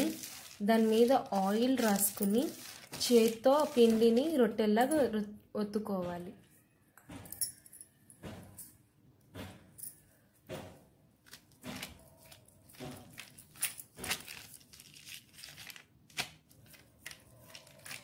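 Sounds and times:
plastic sheet crinkling: 0:00.0 - 0:04.5, 0:11.2 - 0:18.0.

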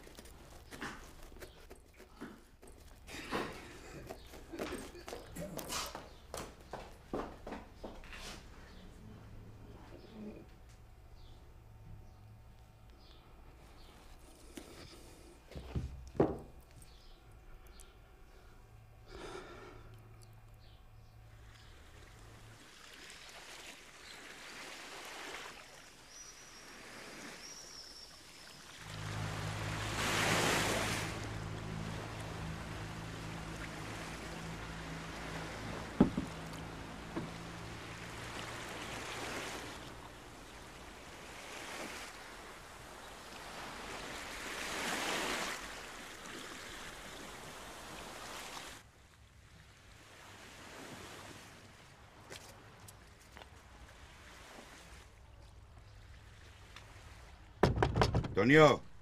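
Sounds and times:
low steady hum: 0:00.0 - 0:44.5
sea waves breaking on beach: 0:21.8 - 0:48.9, 0:49.5 - 0:52.2, 0:54.0 - 0:55.2
sharp knock: 0:57.6 - 0:58.5.

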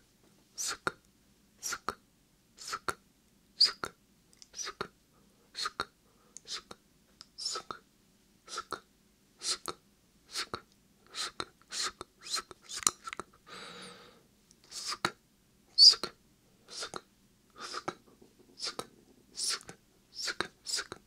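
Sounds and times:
whispered hissing syllables: 0:00.6 - 0:01.0, 0:01.6 - 0:02.0, 0:02.6 - 0:03.0, 0:04.5 - 0:04.9, 0:05.5 - 0:07.8, 0:08.5 - 0:13.3, 0:14.6 - 0:15.2, 0:15.8 - 0:21.0
wet mouth clicks: 0:09.4 - 0:13.3, 0:16.7 - 0:17.0, 0:17.6 - 0:21.0
breathy hiss: 0:13.4 - 0:15.1, 0:16.6 - 0:21.0.

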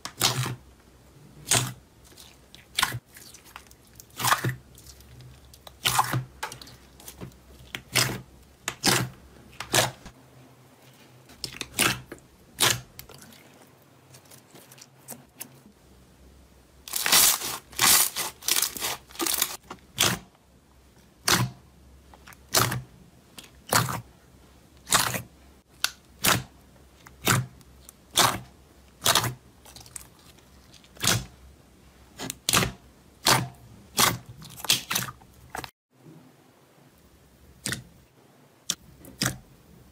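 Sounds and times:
slime squeezed wet crackles: 0:11.4 - 0:15.3, 0:32.4 - 0:35.7.

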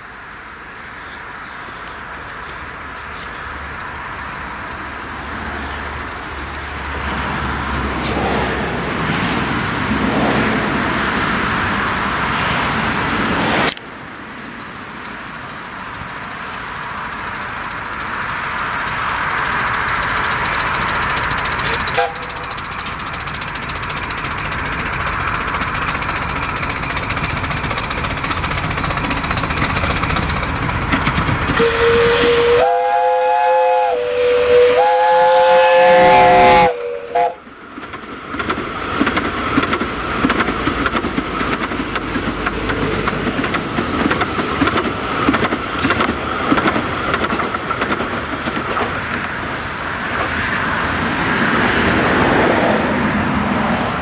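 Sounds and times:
steam train running: 0:00.0 - 0:54.0
train whistle blasts: 0:21.7 - 0:22.5, 0:31.6 - 0:37.4.

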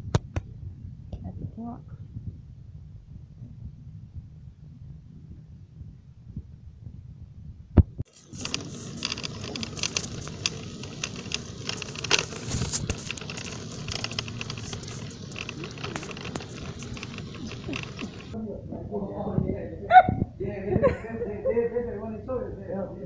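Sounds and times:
phone microphone handling noise: 0:07.7 - 0:18.4.

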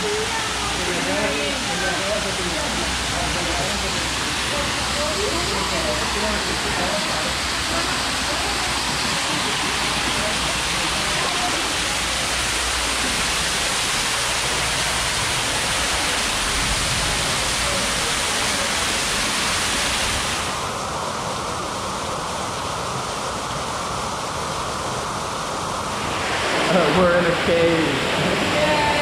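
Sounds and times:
waterfall splashing into pool: 0:00.0 - 0:29.0.

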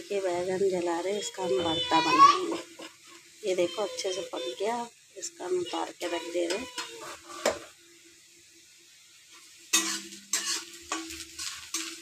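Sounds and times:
metal cookware clattering: 0:06.3 - 0:07.7, 0:09.7 - 0:12.0
metal lid clanking: 0:09.8 - 0:11.9.

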